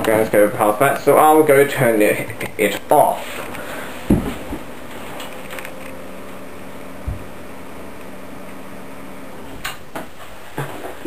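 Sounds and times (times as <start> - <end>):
computer fans humming: 0.0 - 11.0
soft low thump: 4.0 - 4.7, 7.0 - 7.3.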